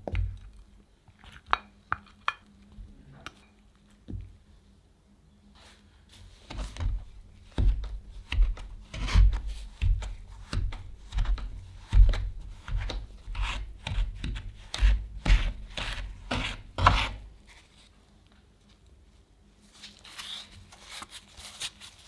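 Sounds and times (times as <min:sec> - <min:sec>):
bowl scraper scraping in wooden bowl: 0:07.6 - 0:17.3.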